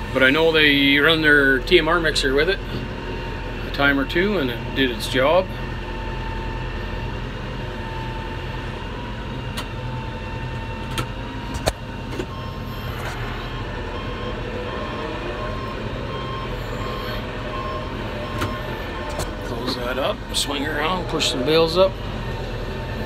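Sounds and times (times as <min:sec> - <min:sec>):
tractor diesel engine running: 0:00.0 - 0:23.0
reverse alarm beeping: 0:12.0 - 0:22.4.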